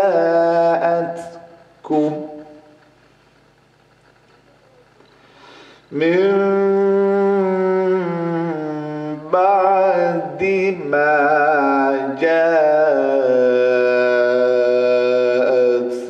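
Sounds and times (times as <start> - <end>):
man reciting melodically: 0.0 - 2.8, 5.9 - 16.0.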